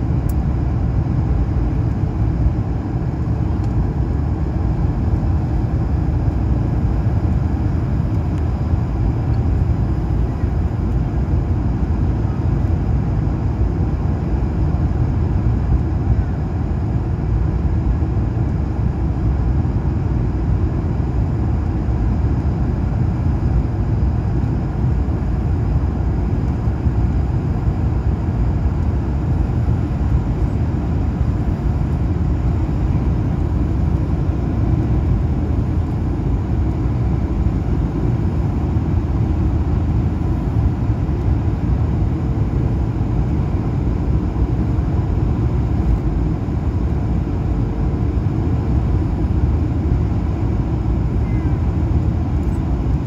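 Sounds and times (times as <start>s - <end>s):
faint steady whine: 0.0s - 53.0s
jet engine and airflow rush: 0.0s - 53.0s.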